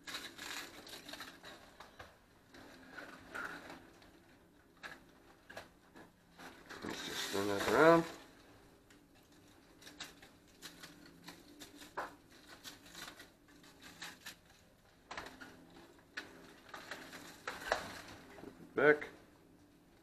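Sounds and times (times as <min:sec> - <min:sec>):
spice shaker ticks and rustles: 0:00.0 - 0:02.1, 0:06.8 - 0:17.6.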